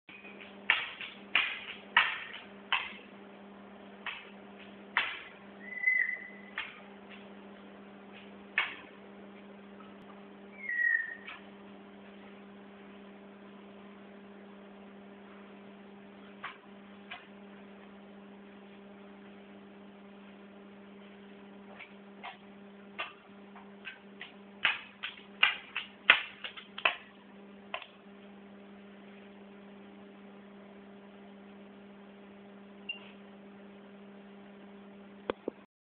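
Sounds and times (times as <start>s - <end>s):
electrical hum: 0.1s - 35.7s
bird whistled notes: 5.6s - 6.5s, 10.6s - 11.3s.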